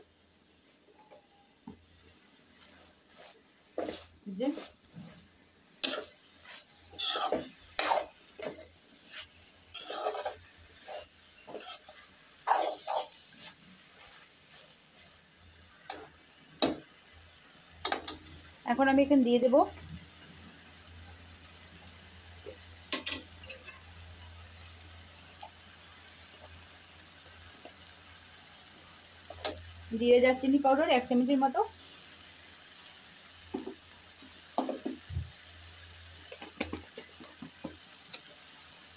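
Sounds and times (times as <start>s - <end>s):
vegetables sizzling in a pan: 0.0s - 38.9s
spoon scraping metal wok: 5.8s - 13.6s.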